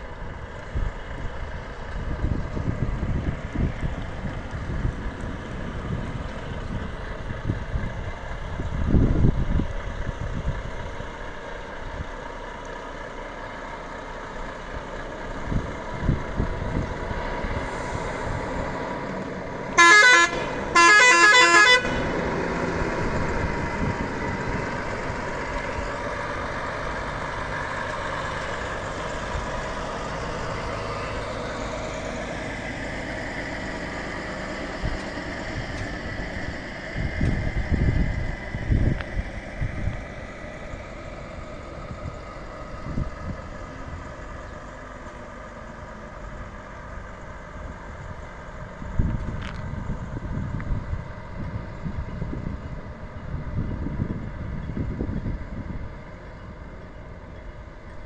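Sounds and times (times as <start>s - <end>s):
lorry diesel engine: 0.0s - 58.0s
lorry horn: 19.8s - 22.0s.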